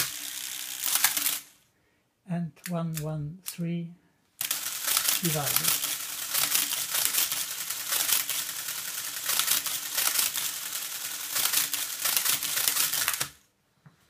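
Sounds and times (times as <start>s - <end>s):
calculator motor hum: 0.0s - 1.5s, 4.4s - 13.4s.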